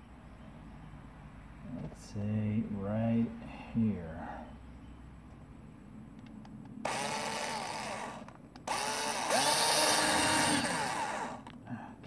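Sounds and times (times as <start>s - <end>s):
electric drill drilling rubber: 6.8s - 11.5s.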